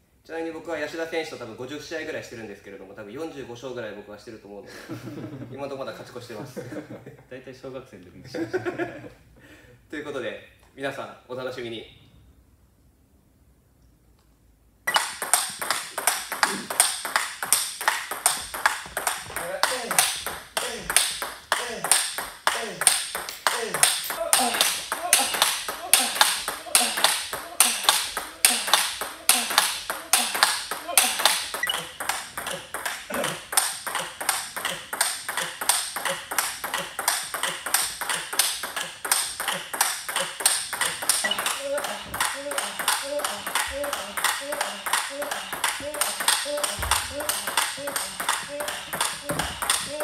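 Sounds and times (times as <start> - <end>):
table tennis ball clicking: 14.9 - 50.0.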